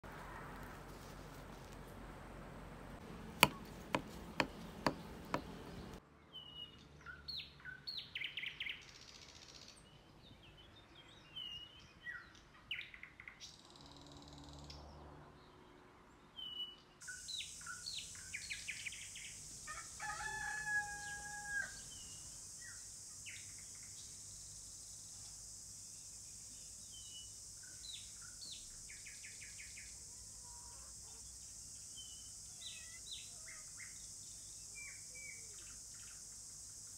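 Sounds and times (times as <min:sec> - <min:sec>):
birds chirping: 0:02.6 - 0:06.7
hands tapping bread crust: 0:03.4 - 0:06.0
rooster crowing: 0:19.7 - 0:21.9.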